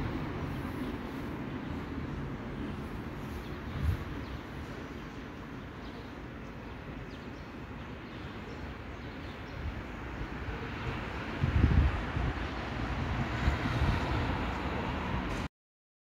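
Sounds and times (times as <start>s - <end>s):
distant city traffic rumble: 0.0s - 15.5s.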